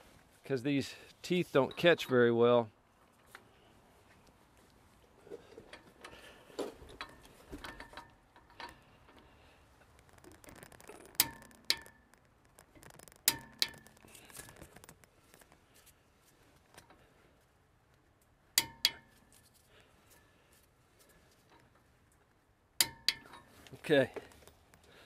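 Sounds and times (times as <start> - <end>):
torque wrench clicking: 10.0 - 15.5.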